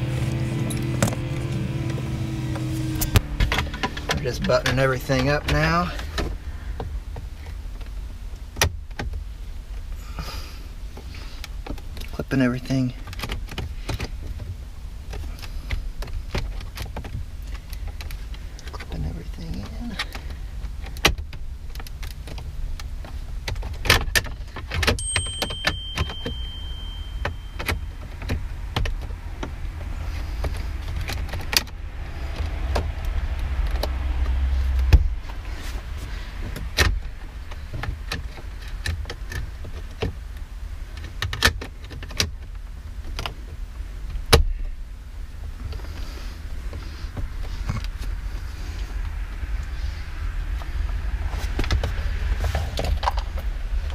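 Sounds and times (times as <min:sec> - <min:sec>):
steady low rumble: 0:00.0 - 0:23.6, 0:24.3 - 0:53.9.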